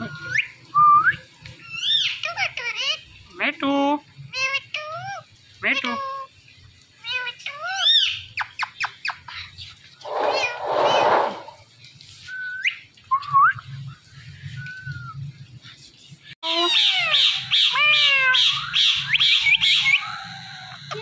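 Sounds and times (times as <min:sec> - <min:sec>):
parakeet calling: 0:10.0 - 0:11.6.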